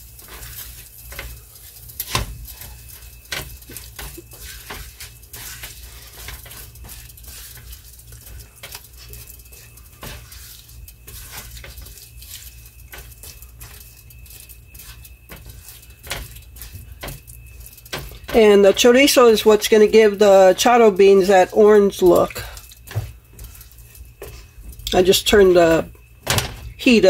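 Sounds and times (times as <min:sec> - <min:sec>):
spatula scraping frying pan: 0:00.0 - 0:26.0
light sizzle: 0:00.0 - 0:27.0.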